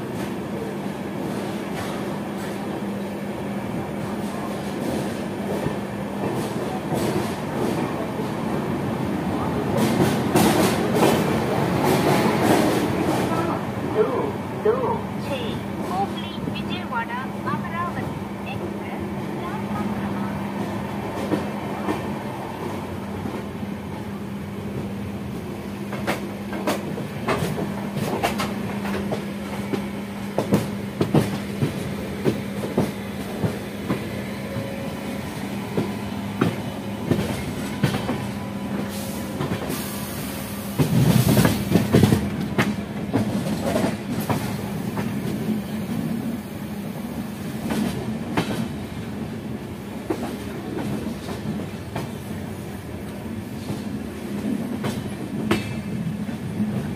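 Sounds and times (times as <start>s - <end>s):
train running hum: 0.0s - 56.9s
train rushing: 0.0s - 56.9s
train wheels clattering over rail joints: 40.7s - 46.1s, 53.6s - 56.9s.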